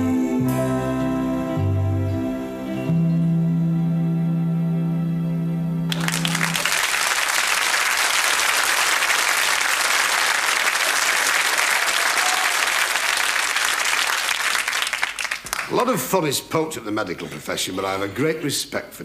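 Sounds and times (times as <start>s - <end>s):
audience applauding: 5.9s - 16.0s.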